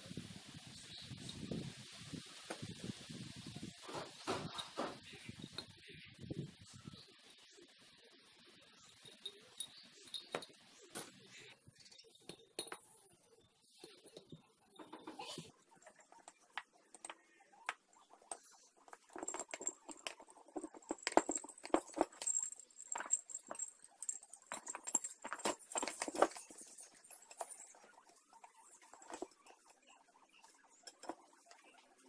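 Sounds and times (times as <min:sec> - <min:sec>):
metal spokes clinking: 0:15.5 - 0:32.0.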